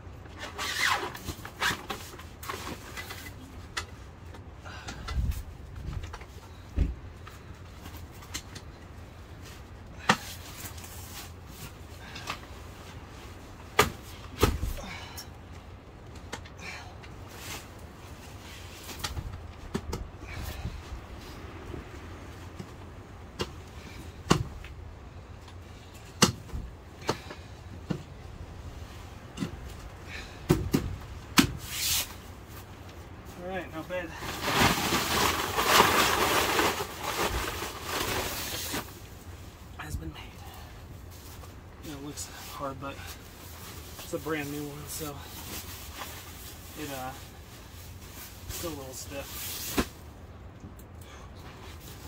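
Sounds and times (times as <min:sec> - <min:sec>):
camping gear clicks and knocks: 0:00.2 - 0:12.7
dull thump: 0:06.8 - 0:07.0, 0:13.8 - 0:14.8
camping gear knocks and clicks: 0:18.9 - 0:20.1, 0:23.4 - 0:24.8, 0:29.3 - 0:31.6
short rubbing hiss: 0:31.6 - 0:32.2.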